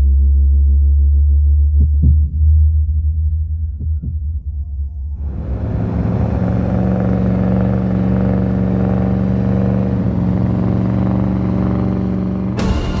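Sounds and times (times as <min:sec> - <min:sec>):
engine running under heavy load: 0:05.2 - 0:13.0.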